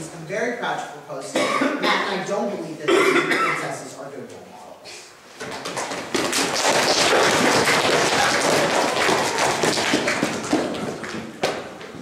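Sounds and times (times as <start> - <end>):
audience applauding: 5.8 - 11.3.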